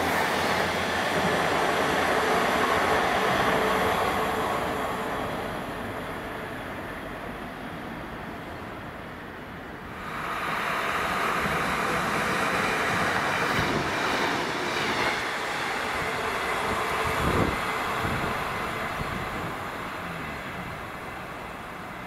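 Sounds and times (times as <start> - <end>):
train passing: 0.0 - 22.0.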